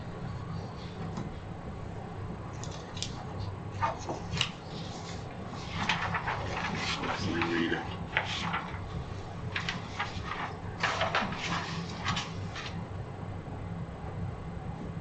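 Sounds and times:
steady low hum: 0.0 - 15.0
paper rustling: 3.8 - 12.8.

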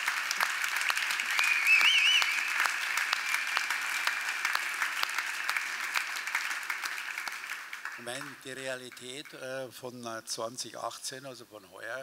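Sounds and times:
audience applauding: 0.0 - 9.4.

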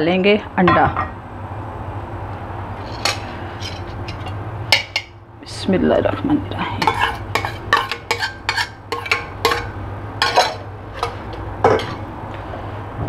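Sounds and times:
steady low hum: 0.0 - 13.0
utensil clinking against bowl: 6.8 - 12.1.

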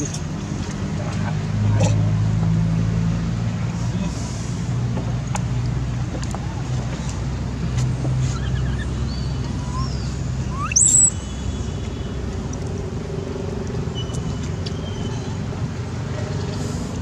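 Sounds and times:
distant engine droning: 0.0 - 17.0
faint high chirps: 8.7 - 11.8
shrill upward-sweeping call: 9.6 - 11.3.

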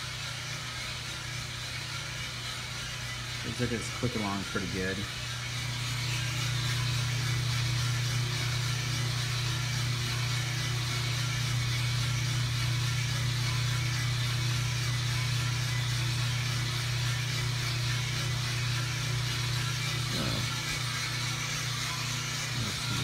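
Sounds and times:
coffee roaster low hum: 0.0 - 23.0
even hiss: 20.0 - 21.0.

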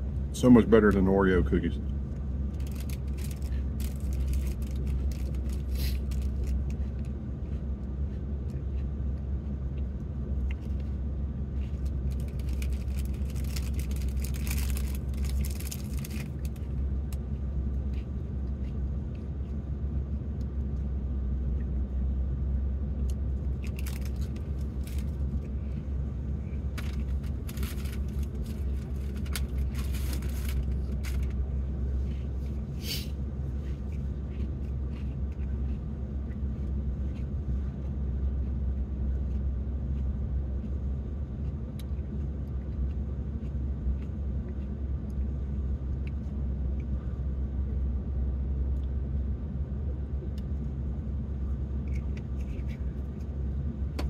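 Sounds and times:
cookies crunching: 2.1 - 19.7, 23.1 - 32.6, 33.6 - 47.0, 51.5 - 53.6.

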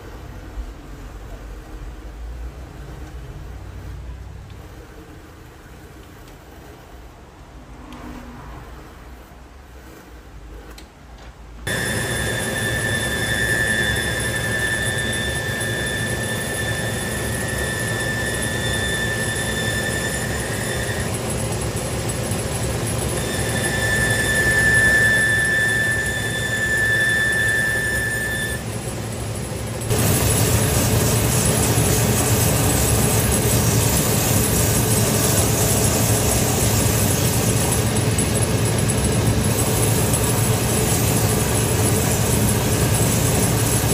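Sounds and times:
spinning wheel whir with hiss: 11.6 - 43.9
high-pitched squeal: 11.7 - 28.8, 29.8 - 43.9.

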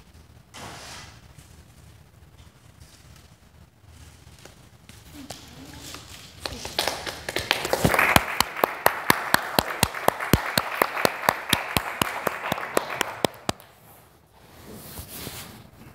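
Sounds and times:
close clapper clapping: 5.3 - 13.8
audience applause: 6.4 - 13.8.

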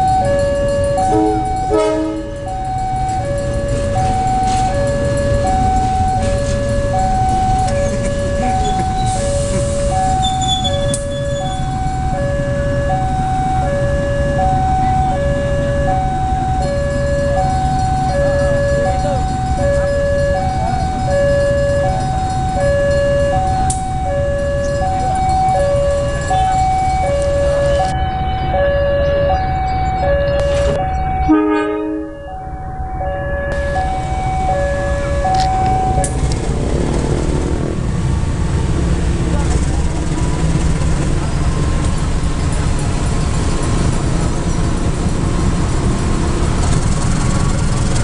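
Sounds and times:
level-crossing two-tone alarm: 0.0 - 36.3
train rumbling past: 0.0 - 48.0.

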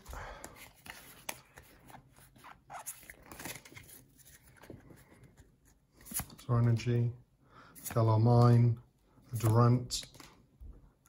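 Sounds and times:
trading cards clicking and rustling: 0.0 - 6.4, 9.3 - 10.5.

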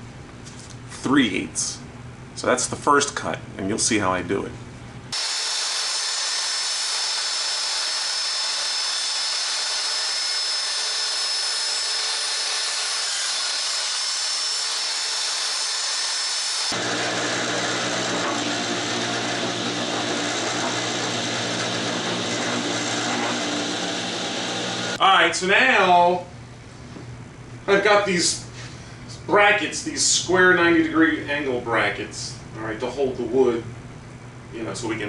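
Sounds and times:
table saw cutting board: 5.1 - 25.0.

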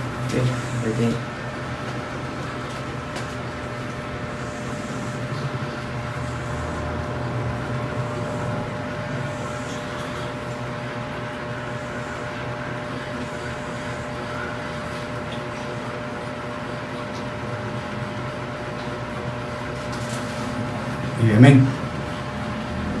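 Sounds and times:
mechanical hum: 0.0 - 23.0
high whine: 2.7 - 15.0.

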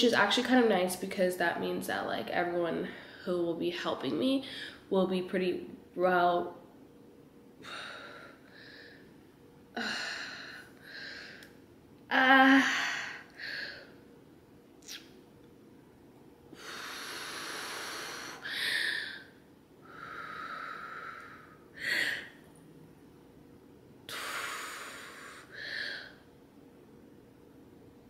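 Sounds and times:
woman breathing heavily: 7.6 - 9.2, 9.8 - 11.5, 12.2 - 14.0, 16.6 - 22.4, 24.1 - 26.3.

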